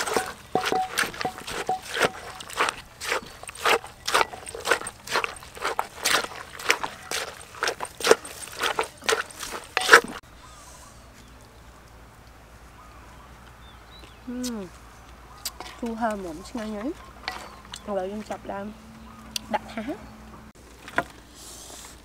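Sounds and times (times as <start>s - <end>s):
wooden pestle pounding in mortar: 0.0s - 10.2s.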